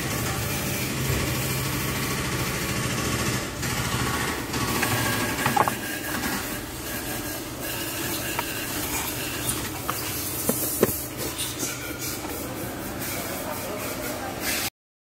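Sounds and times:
diesel engine idling: 1.0s - 11.4s.

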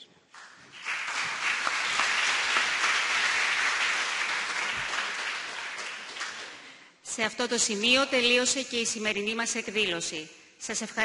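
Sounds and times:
audience applauding: 0.3s - 6.8s.

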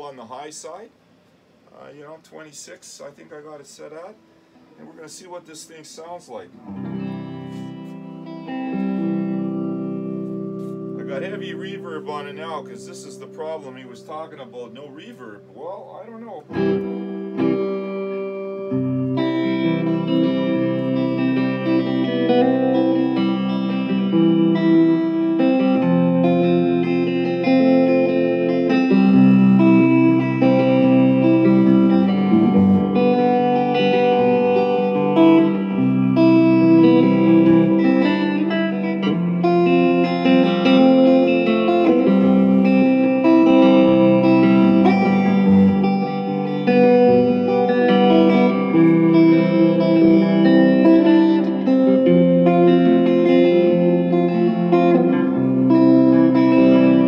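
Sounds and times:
electric guitar chords and notes: 6.6s - 57.0s.

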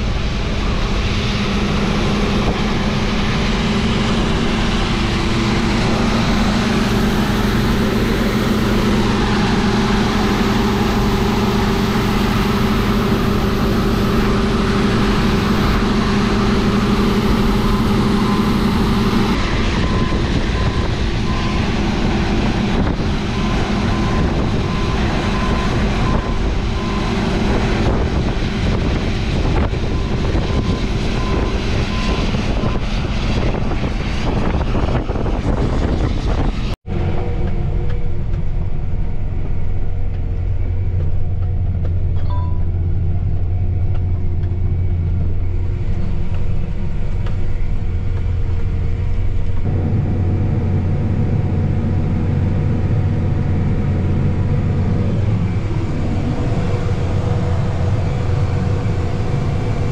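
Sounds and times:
combine harvester humming: 0.0s - 59.9s
high beep: 42.2s - 42.7s.

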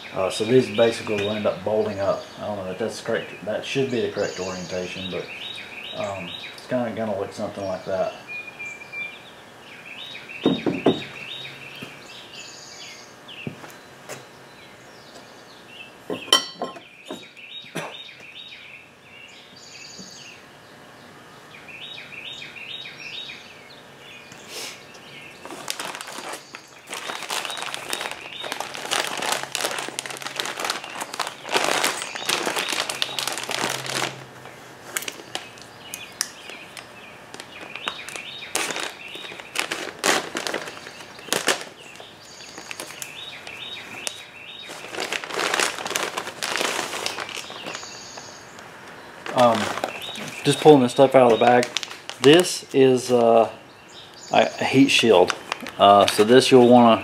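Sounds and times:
birds chirping: 0.0s - 57.0s
plastic bags crinkling: 25.4s - 35.7s, 36.4s - 53.5s, 54.4s - 57.0s.

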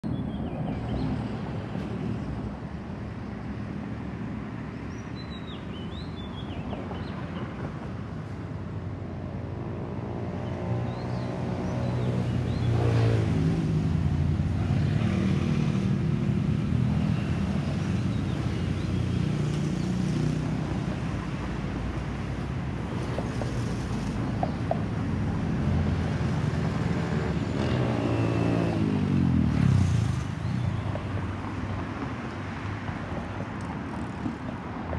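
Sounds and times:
road traffic: 0.0s - 34.9s.

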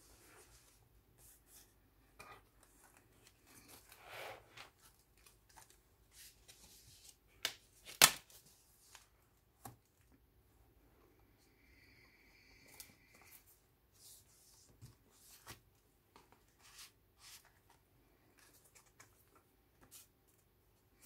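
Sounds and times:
paper pages rustling and turning: 0.4s - 9.9s.

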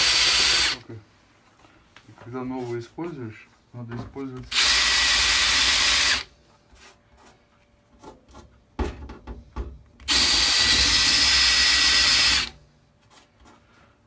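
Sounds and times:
cordless drill drilling metal: 0.0s - 0.8s, 4.5s - 6.3s, 10.1s - 12.6s
drill bit knock: 0.0s - 0.8s, 4.5s - 6.2s, 10.0s - 12.5s.

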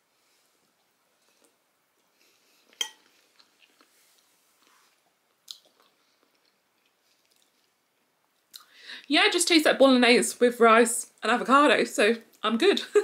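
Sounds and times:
person chewing soft food: 0.8s - 8.6s
wet mouth sounds: 5.4s - 7.8s.

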